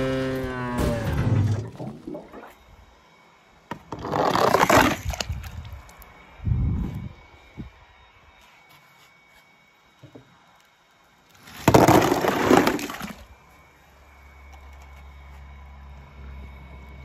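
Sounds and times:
low steady hum: 0:00.0 - 0:17.0
loud crashing noise: 0:00.6 - 0:02.1.

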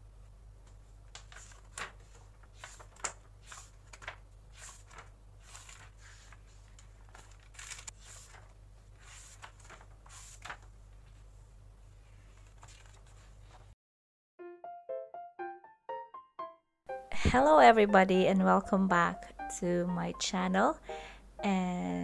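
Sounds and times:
paper pages being turned: 0:01.1 - 0:11.3, 0:12.1 - 0:13.8.

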